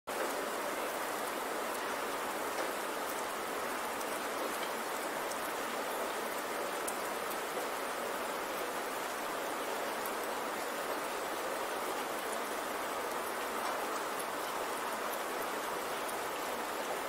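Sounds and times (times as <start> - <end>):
steady rain hiss: 0.1 - 17.0
raindrop ticks: 1.2 - 5.6, 13.1 - 14.6.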